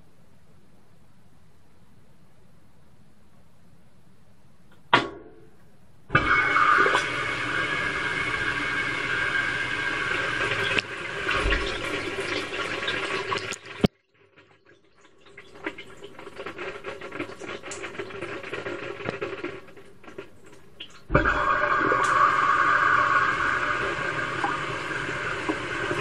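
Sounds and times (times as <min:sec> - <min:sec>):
water rushing into drum: 0:06.1 - 0:13.9, 0:15.2 - 0:26.0
water splashing and trickling: 0:10.5 - 0:18.2.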